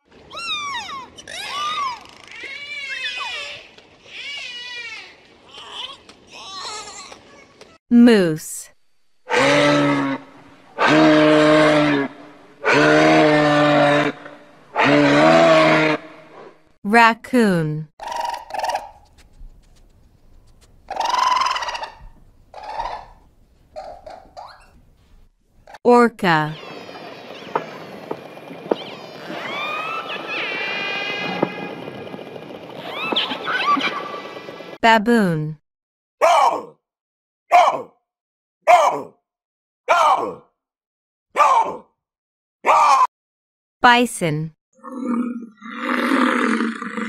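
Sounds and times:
raccoon calling: 20.9 - 24.8, 28.7 - 31.8
dolphin whistling: 28.7 - 31.7.

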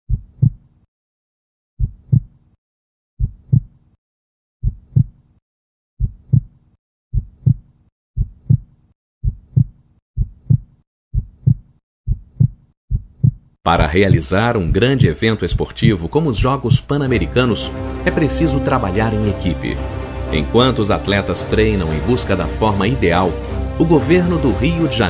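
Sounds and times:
heartbeat thumps: 0.1 - 0.6, 1.8 - 2.3, 3.2 - 3.7, 4.6 - 5.2, 6.0 - 6.5, 7.1 - 16.9.

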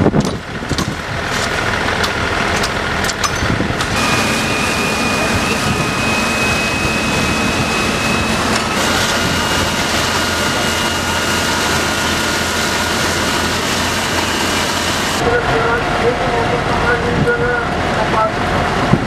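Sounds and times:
fire engine pumps running: 0.0 - 19.0
thin steady whine: 1.6 - 18.4
water jets from hoses: 3.9 - 15.2.

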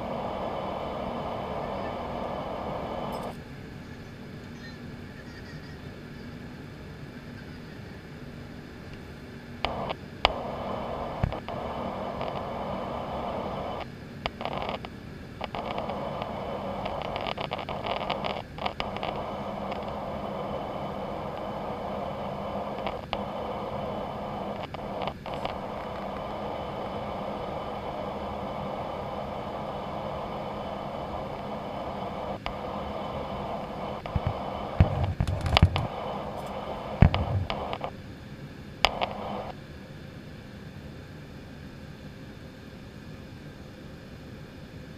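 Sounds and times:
airplane cabin noise: 0.0 - 44.9
camera scraping and clicking: 34.0 - 37.9.

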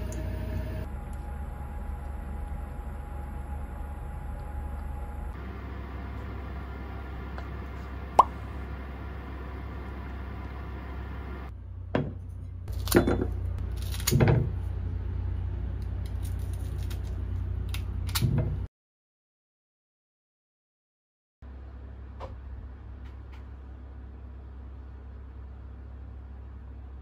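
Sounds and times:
low steady hum: 0.0 - 18.7, 21.4 - 27.0.

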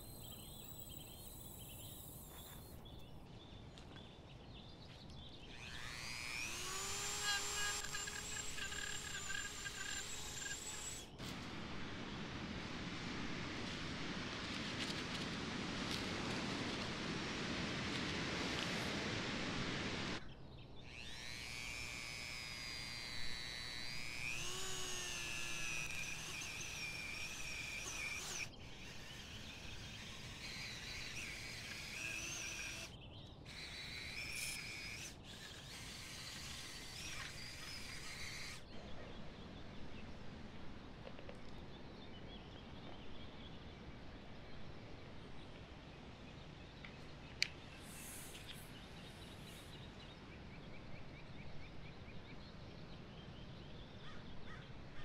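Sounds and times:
rotary tool grinding wood: 5.4 - 11.4, 20.9 - 38.7, 47.8 - 49.8.

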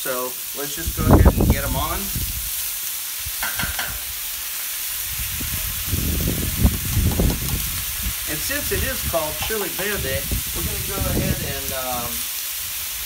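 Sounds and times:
food sizzling on a griddle: 0.0 - 13.0
low thumps: 5.5 - 11.4.

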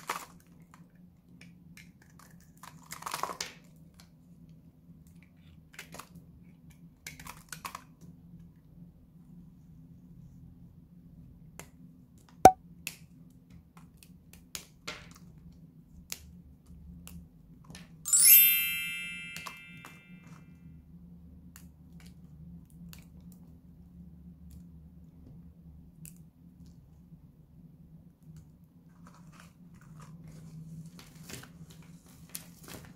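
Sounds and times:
notification bell chime: 18.1 - 20.2.

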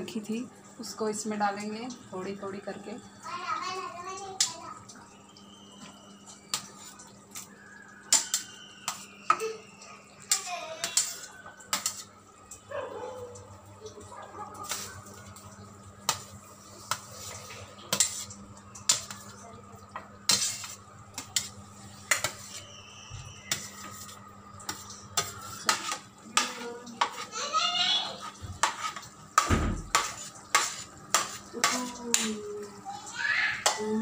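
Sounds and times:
metal spoon clinking on pan: 8.1 - 9.1, 10.3 - 12.1
thump: 29.5 - 29.9.

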